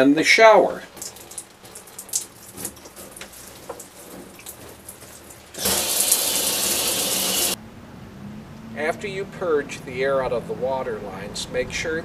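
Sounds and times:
shower head water spray: 0.9s - 7.6s.

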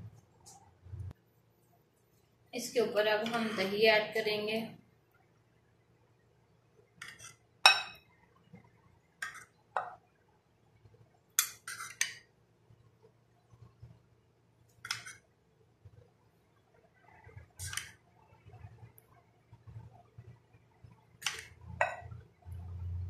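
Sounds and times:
metal spoon clinking on glass bowl: 7.0s - 8.0s.

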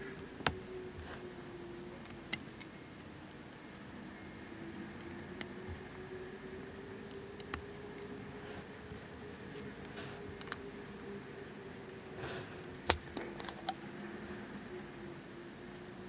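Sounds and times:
tweezers clicking on plastic parts: 6.6s - 8.1s.

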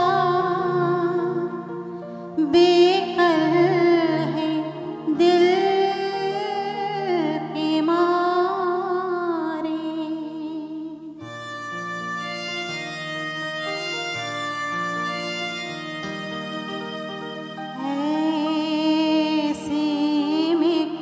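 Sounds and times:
woman singing into a microphone: 0.0s - 11.3s, 17.8s - 21.0s
small band playing: 11.3s - 17.8s.

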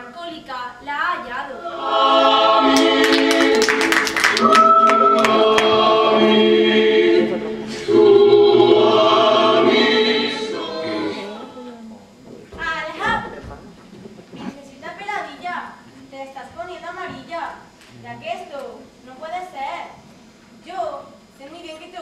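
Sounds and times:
choir singing held chords: 1.5s - 11.7s.

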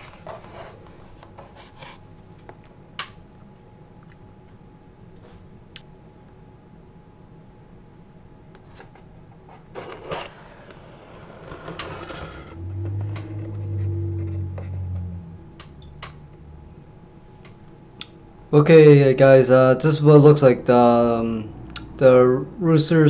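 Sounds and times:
low steady hum: 12.4s - 23.0s.

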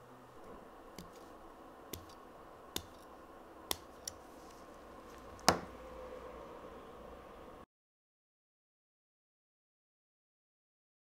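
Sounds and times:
scissors snipping fingernail: 3.7s - 4.2s.

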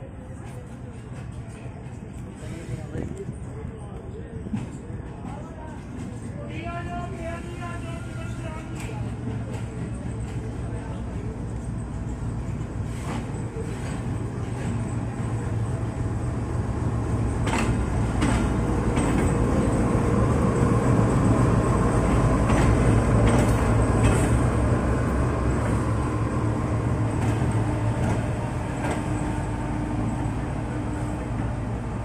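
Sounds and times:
locomotive engine drone: 8.8s - 32.0s.

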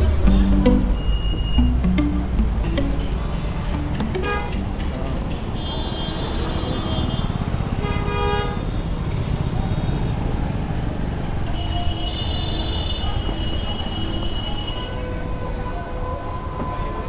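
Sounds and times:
high steady tone: 0.0s - 5.3s
engine rumble: 0.0s - 5.5s
street noise: 0.0s - 17.0s
scooter horn toot: 4.2s - 4.6s.

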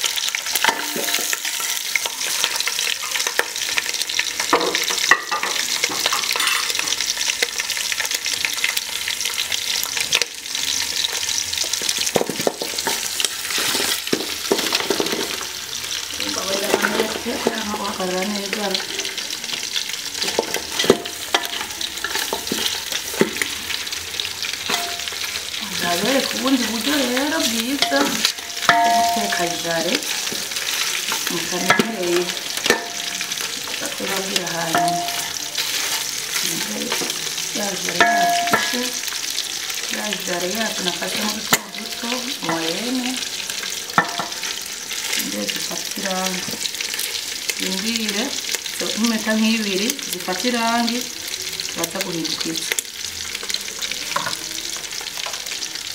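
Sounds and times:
meat sizzling in oil: 0.0s - 55.9s
spatula scraping pot: 20.2s - 23.5s.

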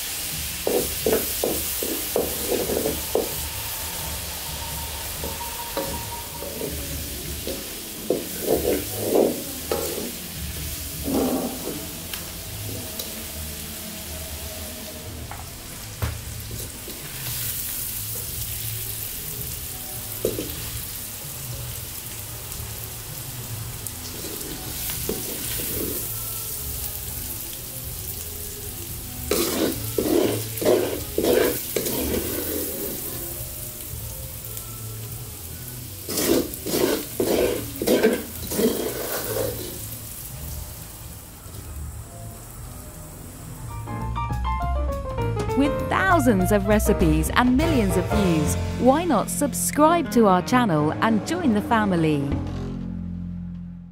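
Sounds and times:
food sizzling in a wok: 0.0s - 44.2s
spoon scraping a wok: 0.6s - 10.2s, 29.3s - 33.1s, 36.0s - 39.8s.

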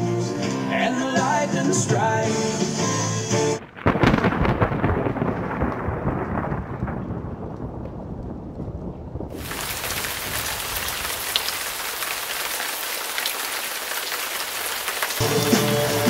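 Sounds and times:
music: 0.0s - 3.6s, 15.2s - 16.0s
low thunder rumble: 3.6s - 11.6s
heavy rain hiss: 9.4s - 16.0s.

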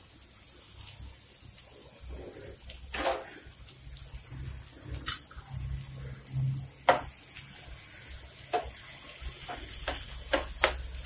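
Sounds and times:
spatula stirring onions in pan: 6.8s - 11.0s.

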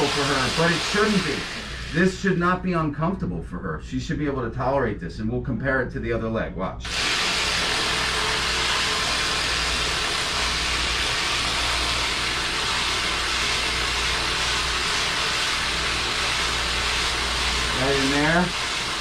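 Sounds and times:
massage gun humming: 6.9s - 19.0s.

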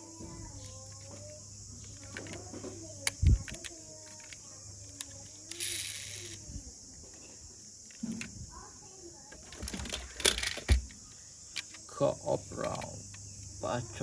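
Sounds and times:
toy wheel spinning whir: 1.8s - 6.4s, 9.5s - 10.8s
metal toy car clicks and rattles: 3.0s - 6.4s, 9.4s - 10.8s.

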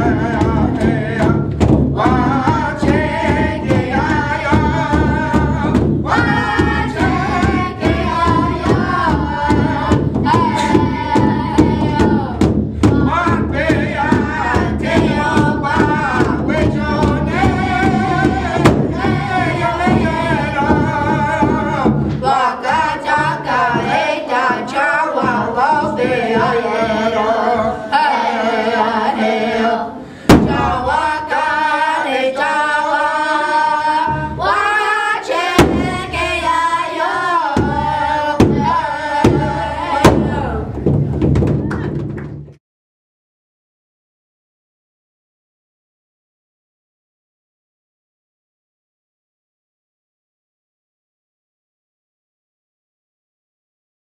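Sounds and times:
large drum beating: 0.0s - 27.8s, 30.3s - 31.3s, 33.9s - 42.6s
group singing a chant: 0.0s - 40.9s.

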